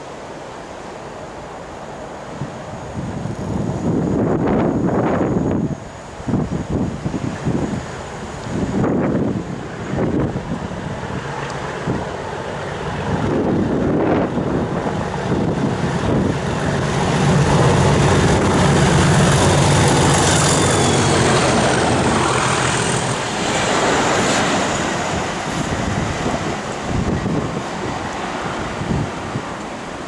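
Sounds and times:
diesel locomotive engine working hard: 1.1 - 30.0
thin high whine: 17.0 - 25.8.

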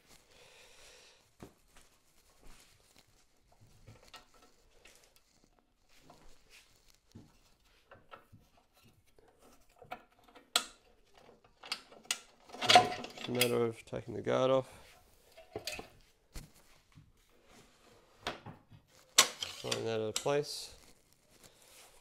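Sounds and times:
metal parts clicking and knocking: 9.7 - 13.6.

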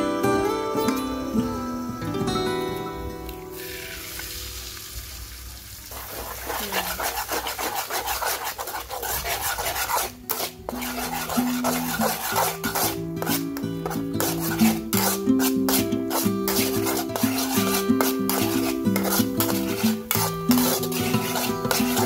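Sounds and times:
egg sizzling in a wok: 3.2 - 22.0
metal spatula scraping a pan: 5.9 - 22.0.

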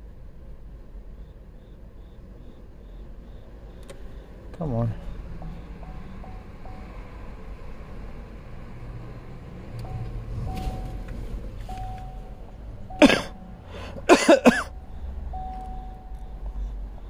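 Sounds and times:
low rumble: 0.0 - 14.1
person coughing: 13.0 - 13.4, 14.0 - 14.7
faint tone: 14.7 - 16.4.

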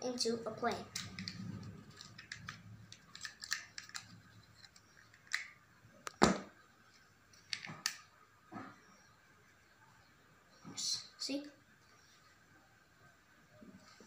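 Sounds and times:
plastic toy parts clicking: 0.6 - 5.6, 7.4 - 8.0.

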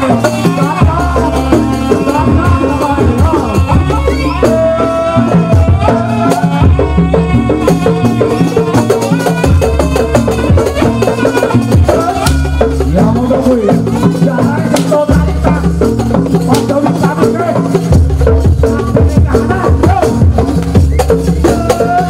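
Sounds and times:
wavering melody line: 0.0 - 14.4
drums: 0.0 - 22.0.

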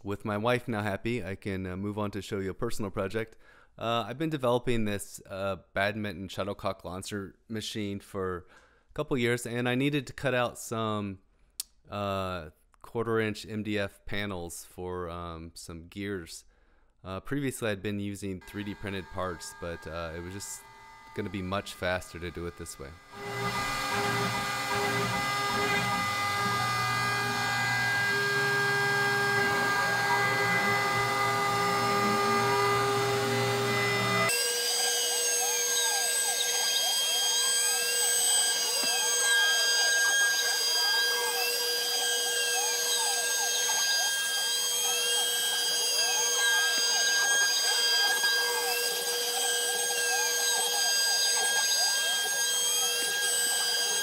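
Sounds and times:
motors speeding up and slowing: 18.4 - 54.0
router spindle whine: 18.4 - 54.0.

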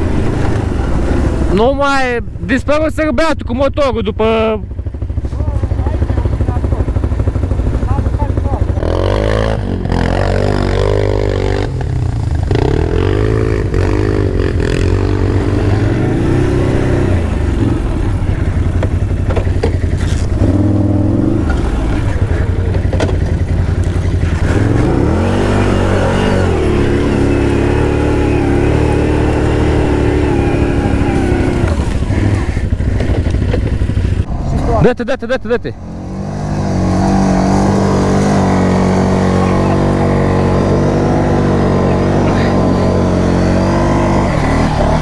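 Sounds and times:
atv engine revving: 0.0 - 45.0.

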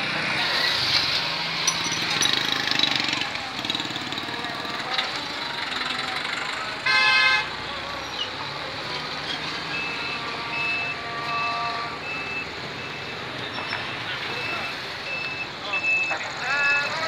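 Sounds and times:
road traffic passing: 0.0 - 17.0
vehicle horn: 6.8 - 7.6, 9.9 - 12.2.

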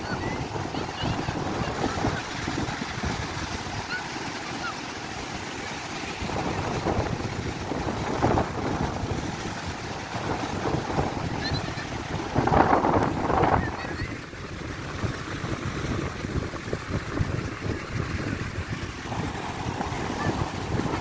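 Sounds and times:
sea surf breaking on rocks: 0.0 - 21.0
wind buffeting microphone: 0.0 - 21.0.

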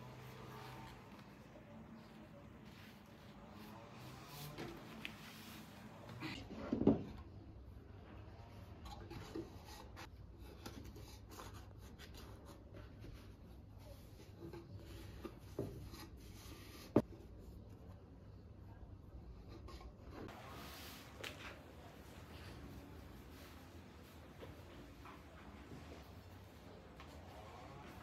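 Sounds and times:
faint rubbing and handling: 0.0 - 6.8, 19.4 - 28.0.

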